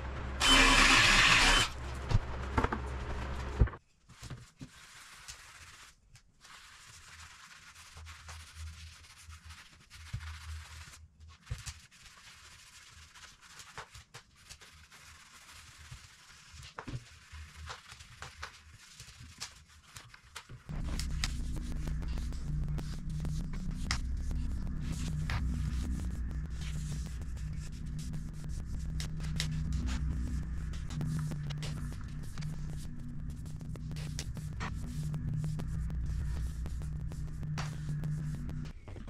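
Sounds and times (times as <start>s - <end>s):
low steady hum: 0.0s - 3.8s, 20.7s - 39.0s
cordless drill boring into wood: 0.4s - 1.7s.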